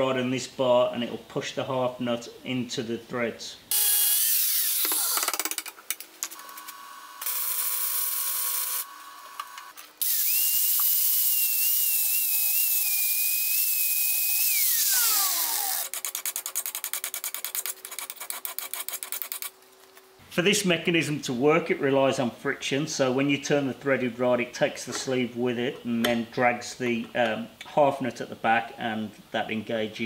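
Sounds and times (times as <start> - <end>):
angle grinder grinding steel: 10.0 - 16.0.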